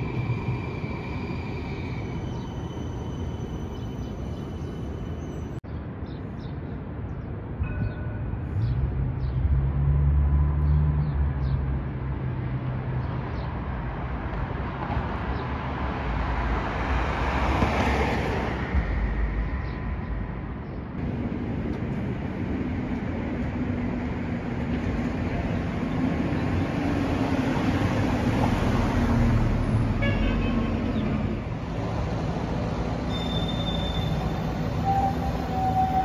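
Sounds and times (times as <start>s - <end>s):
street traffic: 0.0s - 36.0s.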